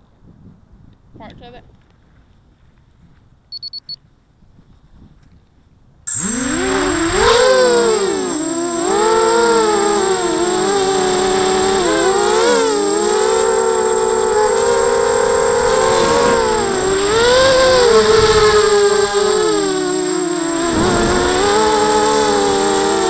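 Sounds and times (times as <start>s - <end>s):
quadcopter motors buzzing whine: 6.1s - 23.0s.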